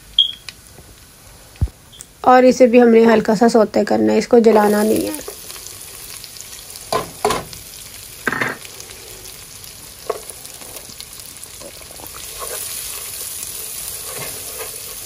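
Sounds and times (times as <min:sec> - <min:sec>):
onion sizzling in a pan: 0:00.0 - 0:15.0
wooden spoon scraping a pan: 0:11.6 - 0:15.0.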